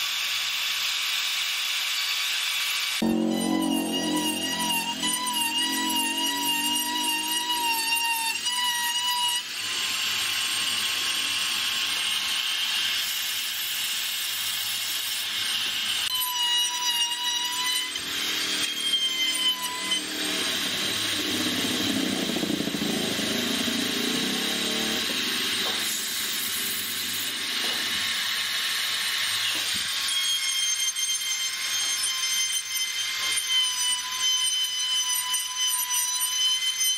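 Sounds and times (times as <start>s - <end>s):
rotary tool grinding wood: 3.0s - 11.4s, 16.1s - 36.9s.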